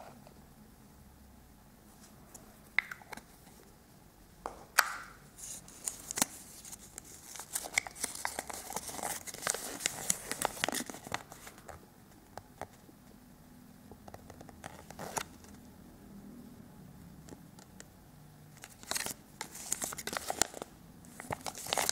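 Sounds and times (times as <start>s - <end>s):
paper leaflet crinkling: 5.4s - 11.7s, 18.6s - 21.9s.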